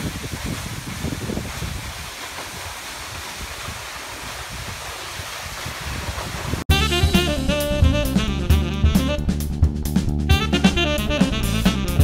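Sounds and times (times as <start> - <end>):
wind buffeting microphone: 0.0 - 6.7
waterfall rushing: 0.0 - 7.5.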